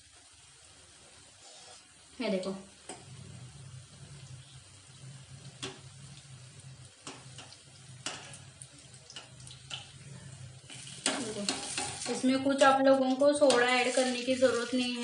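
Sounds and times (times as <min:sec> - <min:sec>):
food sizzling in hot oil: 0:00.0 - 0:15.0
low hum: 0:02.9 - 0:10.7.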